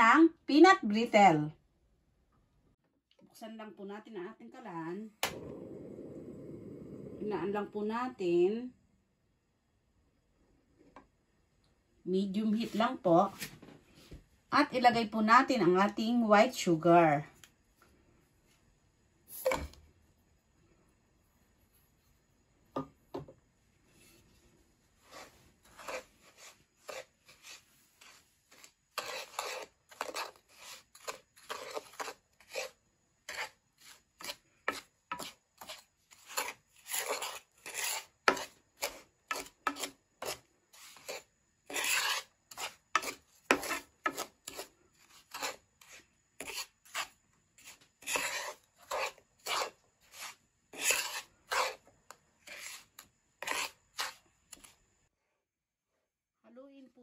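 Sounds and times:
wooden spatula stirring sugar in pan: 23.8s - 54.8s.

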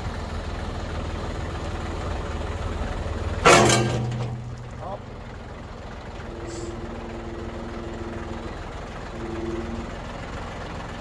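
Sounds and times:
tractor engine running: 0.0s - 11.0s
hydraulic whine: 3.4s - 10.6s.

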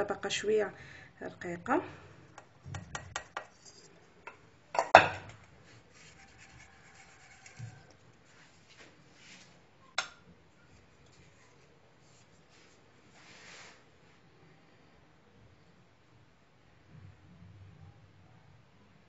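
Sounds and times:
glass bowl and whisk clattering: 2.7s - 3.9s
faint scraping: 2.9s - 4.3s, 5.3s - 9.6s, 10.6s - 14.2s.

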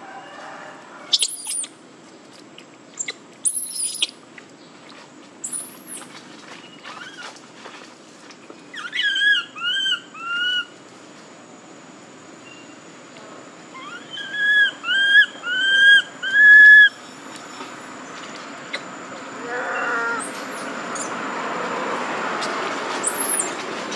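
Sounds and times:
baby monkey crying: 1.1s - 1.7s, 13.8s - 16.9s, 19.4s - 21.1s.

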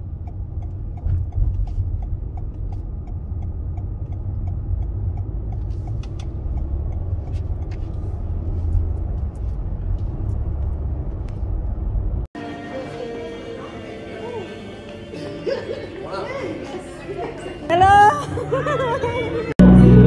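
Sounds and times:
car engine and road noise: 0.0s - 12.9s.

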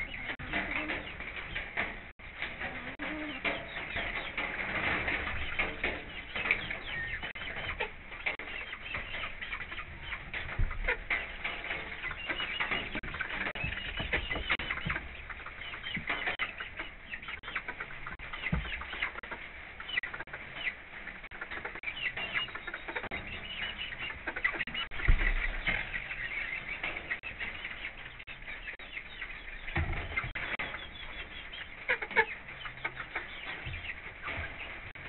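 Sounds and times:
chickens clucking: 0.0s - 35.0s.

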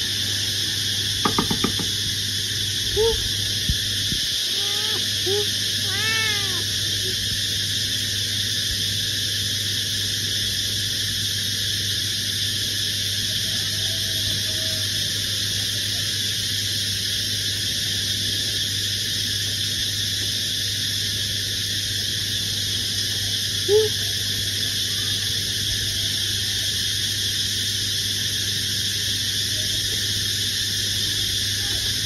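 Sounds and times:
low hum and hiss: 1.9s - 32.0s
cat meowing: 4.4s - 6.7s.

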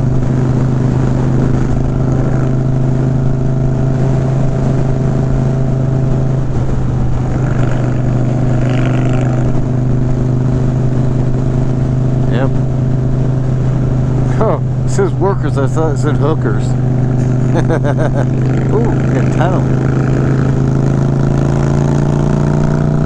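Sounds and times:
motorcycle engine running: 0.0s - 23.0s
wind and road noise: 0.0s - 23.0s.

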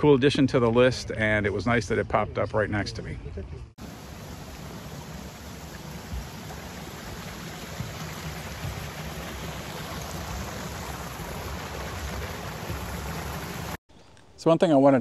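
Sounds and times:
water rushing over a weir: 3.8s - 13.8s.

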